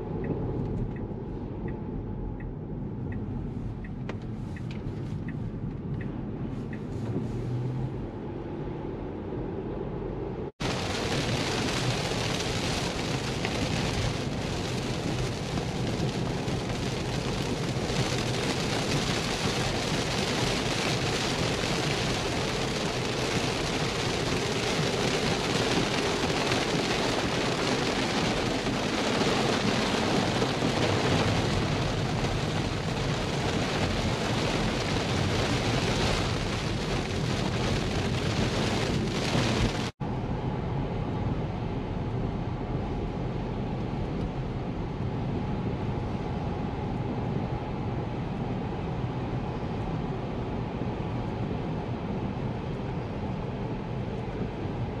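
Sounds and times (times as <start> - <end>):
rain on car roof: 10.6 - 40.0.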